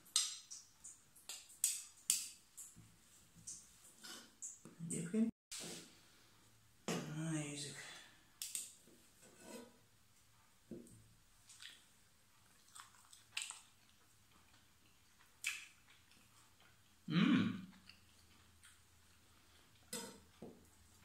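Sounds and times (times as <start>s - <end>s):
man humming mm: 17.1s - 17.7s.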